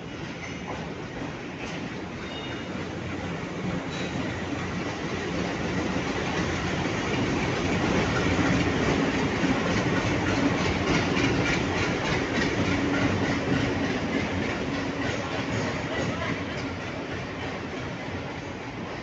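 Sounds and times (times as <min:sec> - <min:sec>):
diesel locomotive engine noise: 0:00.0 - 0:19.0
wheels clacking over rail joints: 0:05.3 - 0:17.9.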